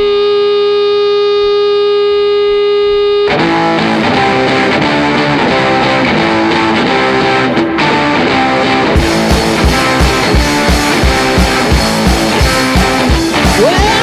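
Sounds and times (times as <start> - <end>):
held electronic tone: 0.0 - 3.8
distorted electric guitar rock music: 0.0 - 14.0.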